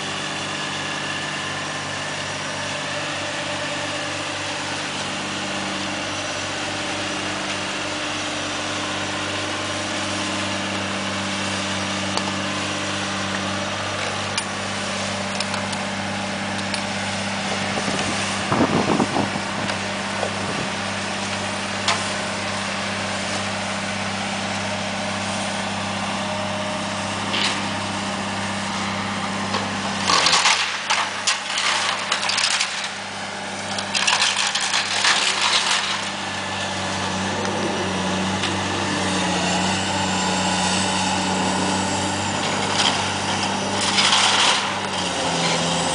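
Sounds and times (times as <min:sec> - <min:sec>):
excavator diesel engine running: 0:00.0 - 0:45.9
rubble crashing and clattering: 0:30.1 - 0:33.0, 0:33.8 - 0:36.2.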